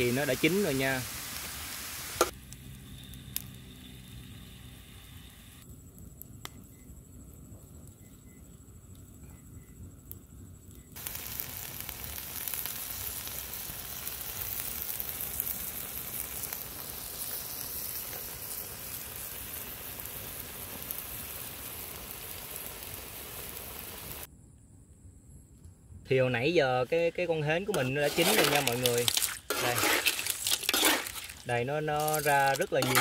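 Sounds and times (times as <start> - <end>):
clams sizzling in a wok: 0.0 - 5.6, 10.8 - 24.3, 27.2 - 33.0.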